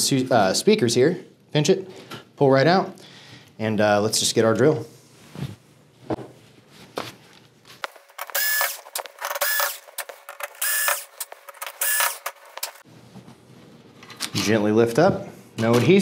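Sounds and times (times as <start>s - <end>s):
cordless drill whirring: 8.2s - 12.3s.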